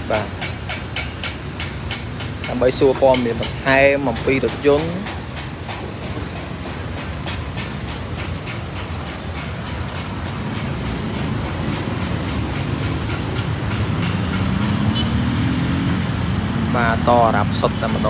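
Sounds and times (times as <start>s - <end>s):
street traffic rumble: 0.0s - 18.0s
vehicle engine accelerating: 13.5s - 17.6s.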